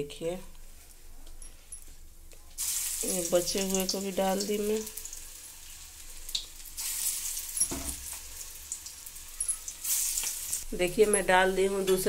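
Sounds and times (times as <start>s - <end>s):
fritters sizzling in hot oil: 2.6s - 10.7s.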